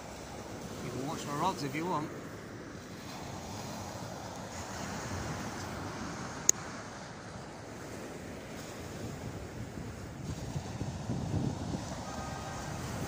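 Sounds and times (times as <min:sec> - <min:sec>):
sea surf on beach: 0:00.0 - 0:13.0
wind on microphone: 0:07.2 - 0:13.0.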